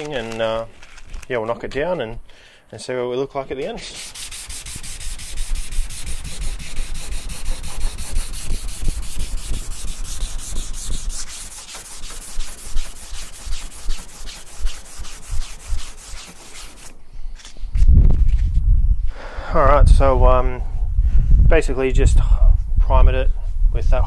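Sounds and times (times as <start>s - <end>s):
sandpaper rubbing by hand: 3.5s - 17.0s.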